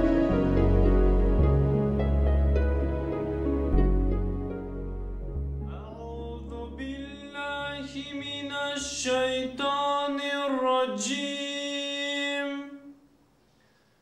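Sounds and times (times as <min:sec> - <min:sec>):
low drone: 0:00.0 - 0:07.2
solo voice chanting: 0:05.7 - 0:13.0.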